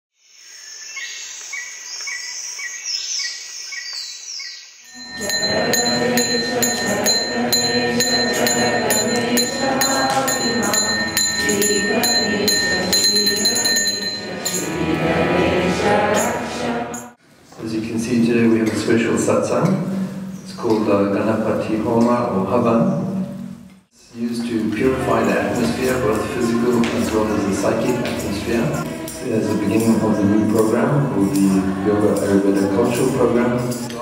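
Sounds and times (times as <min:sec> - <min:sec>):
high ringing tone: 0:04.9 - 0:15.0
group devotional chanting: 0:04.9 - 0:17.2, 0:24.4 - 0:34.0
rhythmic metallic strikes: 0:04.9 - 0:17.2, 0:24.4 - 0:33.9.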